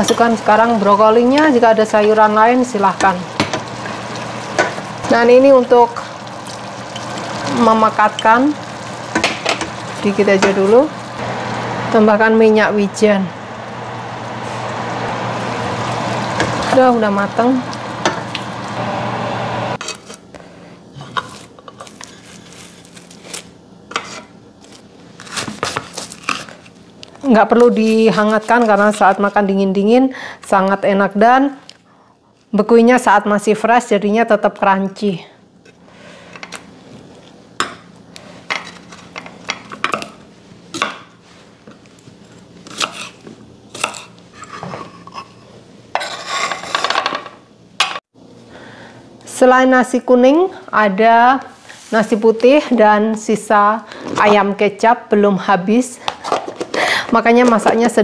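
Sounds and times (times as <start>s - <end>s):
stir-fry sizzling in wok: 0.0s - 19.8s.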